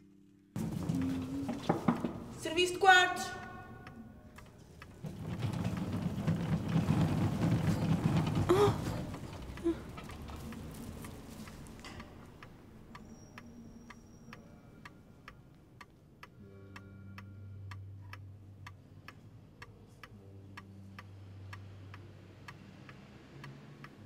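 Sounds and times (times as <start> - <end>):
clock ticking: 2.0 - 6.0, 9.4 - 24.0
low steady hum: 12.6 - 22.6.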